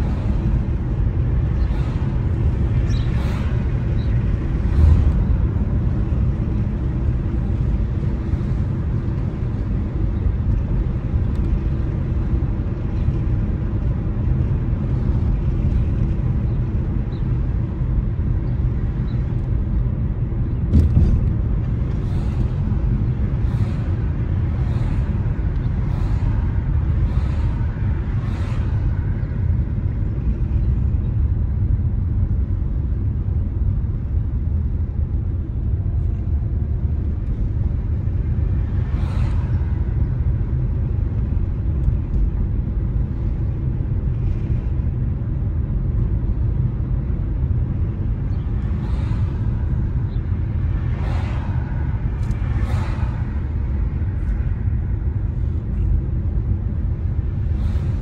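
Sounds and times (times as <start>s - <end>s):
vehicles swishing past: 0.0s - 8.7s, 21.8s - 30.5s, 37.6s - 40.8s, 48.4s - 56.0s
car tyres and engine rumble: 0.0s - 58.0s.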